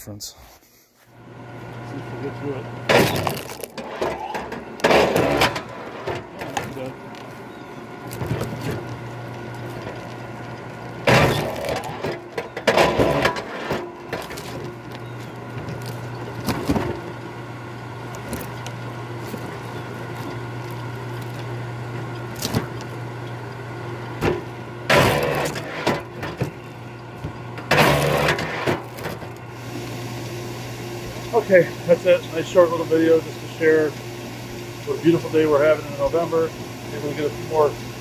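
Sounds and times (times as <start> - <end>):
log splitter motor humming: 1.1 - 38.0
wood splitting with cracks: 2.9 - 17.2, 18.0 - 23.2, 24.1 - 29.5.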